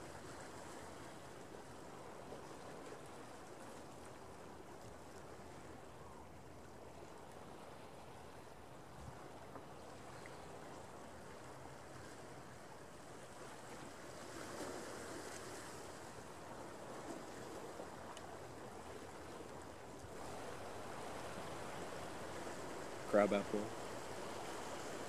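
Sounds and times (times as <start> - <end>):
wind: 0.0 - 25.0
ocean surf: 9.3 - 25.0.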